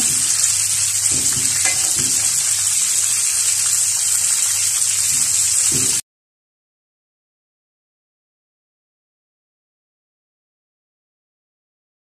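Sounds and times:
oil sizzling in a wok: 0:00.0 - 0:06.0.

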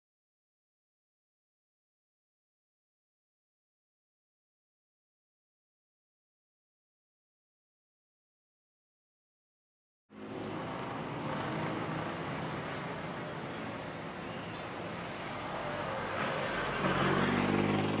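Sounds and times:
city ambience noise: 0:10.1 - 0:18.0.

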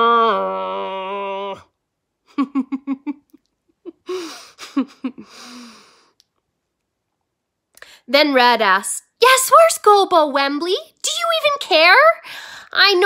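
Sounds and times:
woman laughing and giggling: 0:02.3 - 0:05.4.

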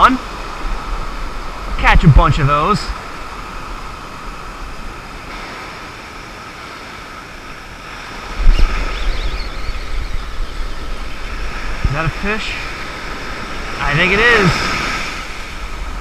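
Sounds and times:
surf waves washing up beach: 0:00.0 - 0:16.0
wind buffeting microphone: 0:07.6 - 0:16.0.

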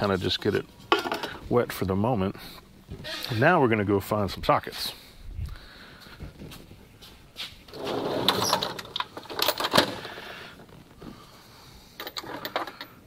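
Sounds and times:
metal tools clinking in drawer: 0:07.8 - 0:10.0, 0:12.0 - 0:13.0.

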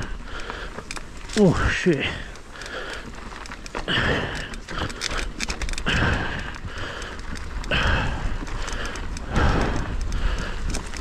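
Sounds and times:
person breathing hard: 0:00.0 - 0:01.0, 0:02.0 - 0:11.0
bike clicks and rattles: 0:00.0 - 0:11.0
steady low rumble: 0:03.8 - 0:11.0.

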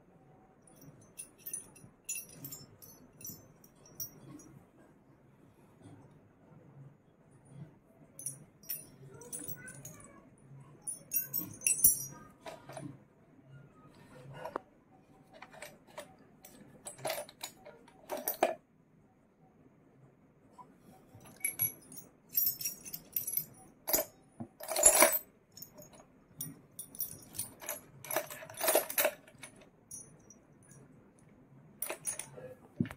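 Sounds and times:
small metal pieces jingling: 0:10.9 - 0:12.8, 0:21.3 - 0:26.0, 0:26.8 - 0:30.1.

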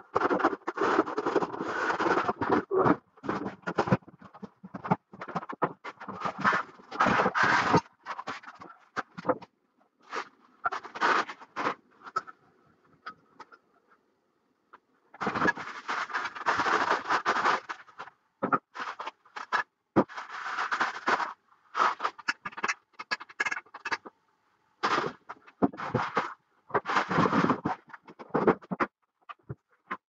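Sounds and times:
plastic wrap crinkling: 0:18.8 - 0:22.7.

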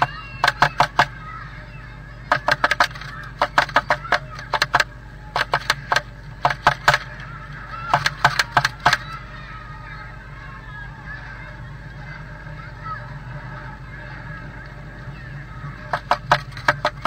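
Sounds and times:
bird pecking sharp taps: 0:00.0 - 0:01.1, 0:02.3 - 0:07.1, 0:07.9 - 0:09.1, 0:15.9 - 0:17.0
steady low hum: 0:00.0 - 0:17.0.

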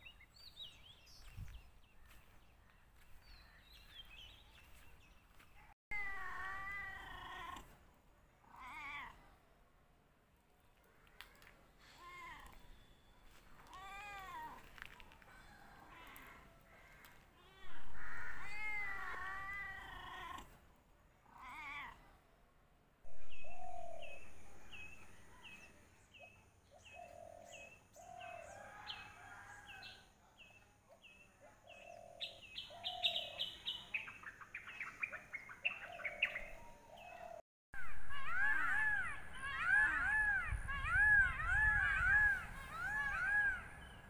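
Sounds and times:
birds calling: 0:23.1 - 0:28.8, 0:31.6 - 0:44.0.

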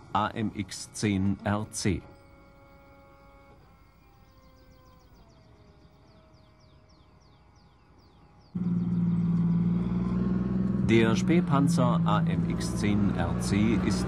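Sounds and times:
faint music with chirps: 0:00.0 - 0:10.4
armoured car diesel engine: 0:08.6 - 0:14.0.

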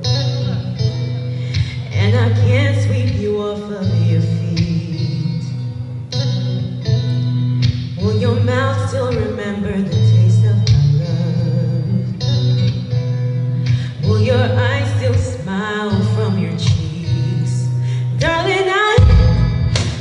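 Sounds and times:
woman singing into microphone: 0:00.0 - 0:20.0
instrumental backing with deep bass: 0:19.0 - 0:20.0.

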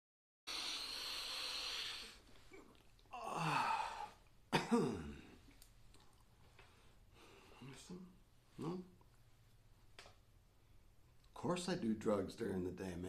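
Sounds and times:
man sniffing hard: 0:00.5 - 0:02.2.

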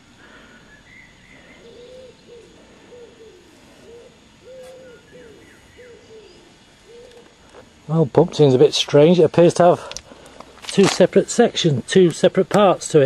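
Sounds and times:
small bird chirping: 0:00.0 - 0:07.8
pigeon cooing: 0:01.3 - 0:07.4.

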